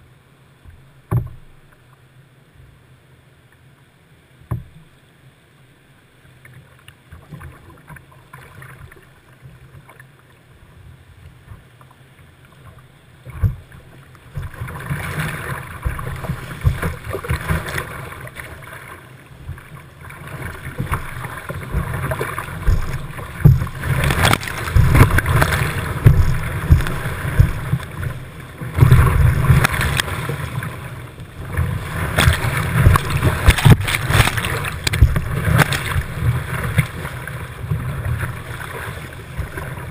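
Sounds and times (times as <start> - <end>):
water lapping at hull: 0.0 - 39.9
paddle strokes: 6.3 - 39.9
rush of rapids: 12.6 - 39.9
water splashing over deck: 20.2 - 30.8, 31.4 - 37.1.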